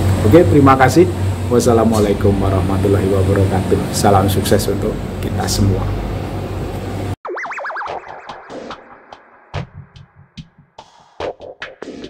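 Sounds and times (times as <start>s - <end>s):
electronic music with drum-machine beat: 7.2s - 12.0s.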